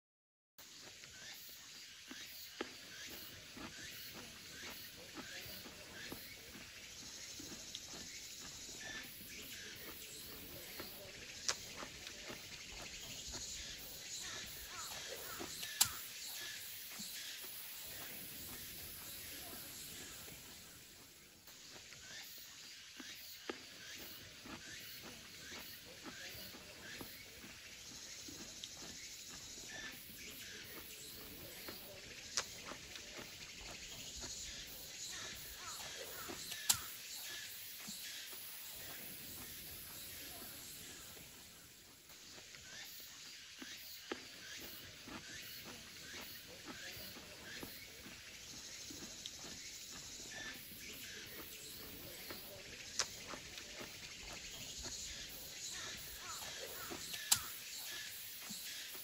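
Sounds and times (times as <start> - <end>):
insects buzzing: 0.6 - 59.0
sharp click: 15.6 - 16.0.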